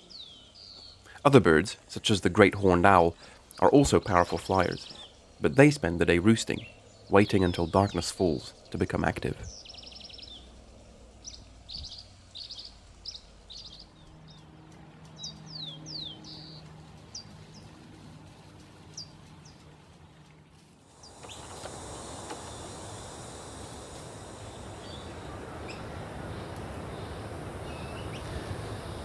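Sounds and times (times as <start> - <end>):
small birds chirping: 0.0 - 10.6, 11.2 - 17.7, 20.9 - 29.0
steady hiss: 20.8 - 29.0.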